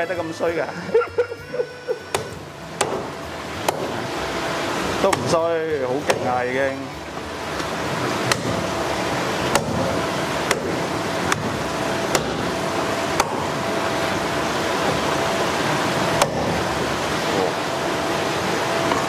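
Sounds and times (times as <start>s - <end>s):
steady background hiss: 0.0s - 19.0s
cleaver chopping fish: 2.1s - 4.2s, 4.9s - 6.6s, 7.6s - 8.7s, 9.4s - 13.5s, 16.2s - 16.7s.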